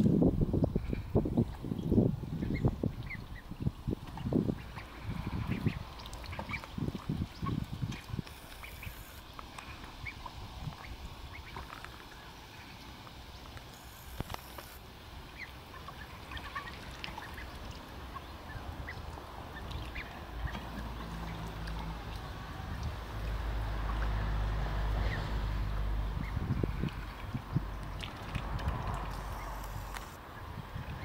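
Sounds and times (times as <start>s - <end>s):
low wind rumble on microphone: 0.0s - 8.4s, 9.6s - 11.6s, 22.2s - 31.0s
ducklings dabbling in shallow water: 0.0s - 31.0s
ducklings calling: 4.5s - 11.7s, 13.7s - 17.5s, 18.1s - 20.6s, 29.1s - 30.2s.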